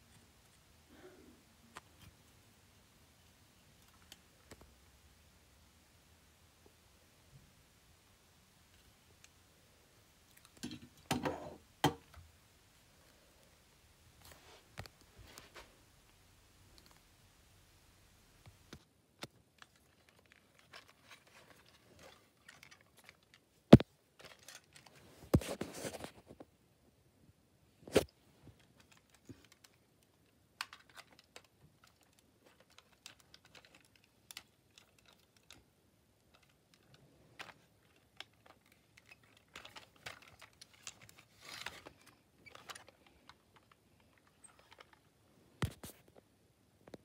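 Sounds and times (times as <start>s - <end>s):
rustling: 12.8s - 17.2s, 18.0s - 26.5s, 27.8s - 46.3s.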